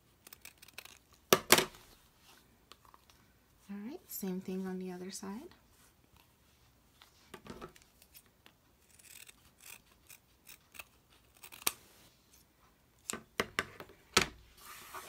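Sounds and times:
scissors snipping fur: 8.8s - 11.8s.

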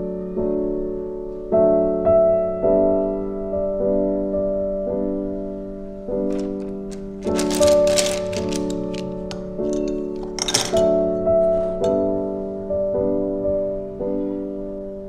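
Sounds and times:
slow gentle piano music: 0.0s - 15.0s
plastic markers clicking: 6.3s - 9.4s.

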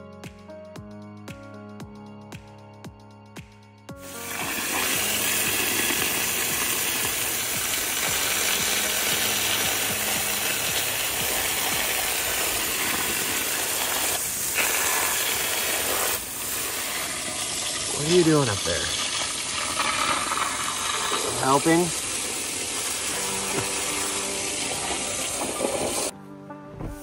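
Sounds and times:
background music with beat: 0.0s - 13.3s
hose spraying and splashing water: 4.0s - 26.1s.

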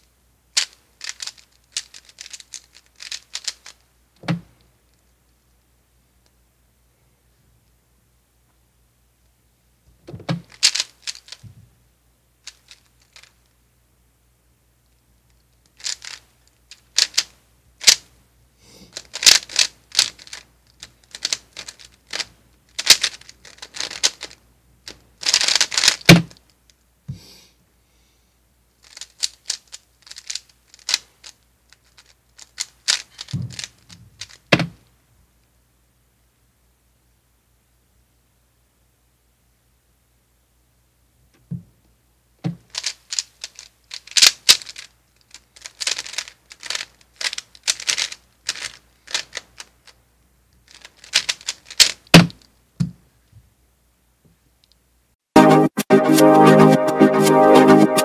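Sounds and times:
speed cube clicking: 0.6s - 3.8s, 10.4s - 11.4s, 15.8s - 18.1s, 18.9s - 26.4s, 28.8s - 34.7s, 42.6s - 50.0s, 50.7s - 52.4s.

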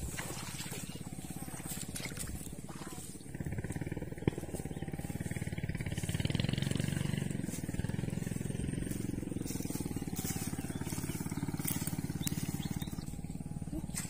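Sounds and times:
small engine running: 0.0s - 14.0s.

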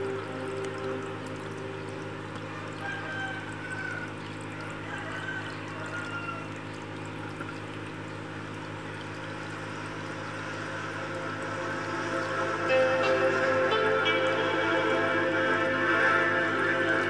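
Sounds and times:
low hum: 0.0s - 2.8s, 7.8s - 17.0s
water pouring into aquarium: 0.0s - 17.0s.

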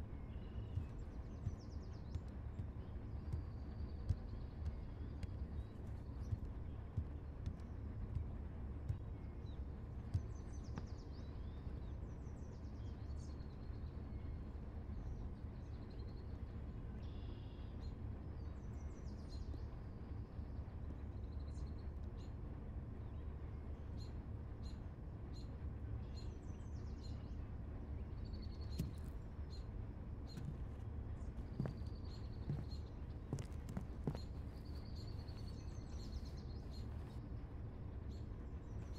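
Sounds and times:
small birds chirping: 0.0s - 38.9s
steady low rumble: 0.0s - 38.9s
faint knocks: 30.3s - 35.5s.

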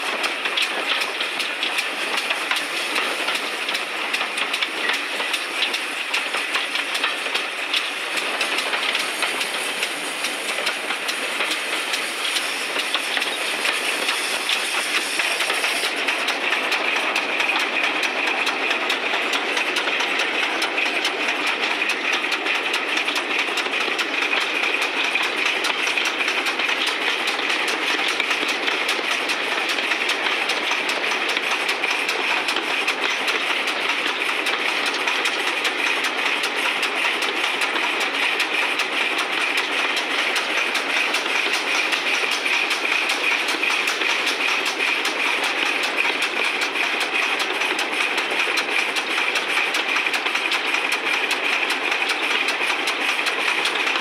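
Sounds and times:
steam locomotive exhaust: 0.0s - 54.0s
wheel and rail clatter: 0.0s - 54.0s.

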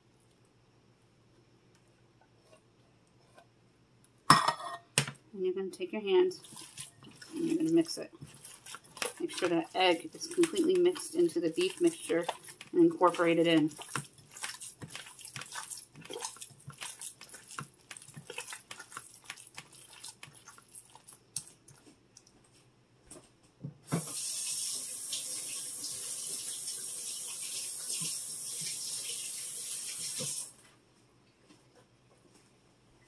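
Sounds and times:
hands squelching raw meat: 6.3s - 21.8s
faucet water running into sink: 23.9s - 30.5s.

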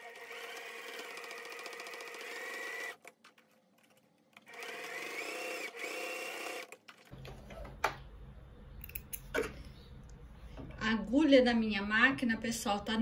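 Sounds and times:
sewing machine stitching: 0.0s - 3.1s, 4.4s - 7.1s.

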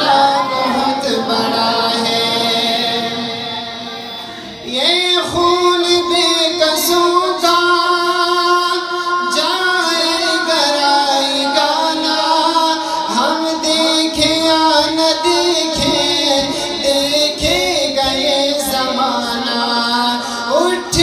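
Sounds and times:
man singing unaccompanied: 4.6s - 21.0s.

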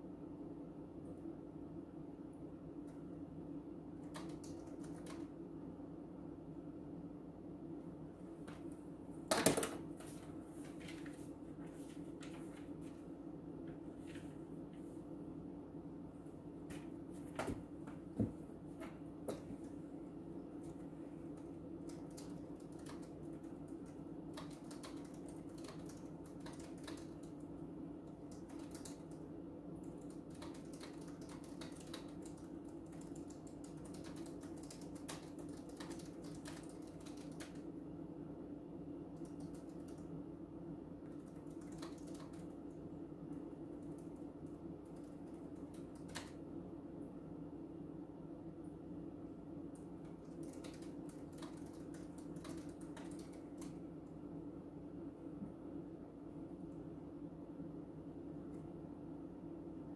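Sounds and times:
steady low hum: 0.0s - 59.9s
laptop keyboard typing: 4.0s - 5.4s, 9.3s - 9.8s, 20.6s - 37.8s, 39.1s - 40.2s, 41.0s - 46.5s, 49.7s - 54.0s.

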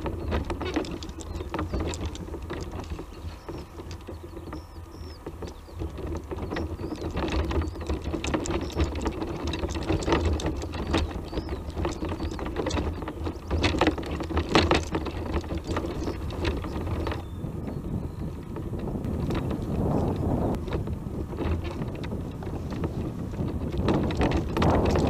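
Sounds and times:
tyres crackling over stones: 0.0s - 17.2s
wind on microphone: 0.0s - 25.0s.

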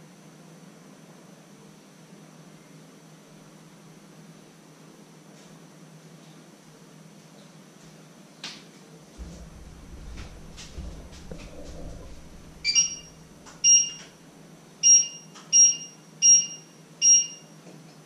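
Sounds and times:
soft knocks: 9.2s - 13.6s
electronic appliance beeps: 12.6s - 14.1s, 14.8s - 17.6s.

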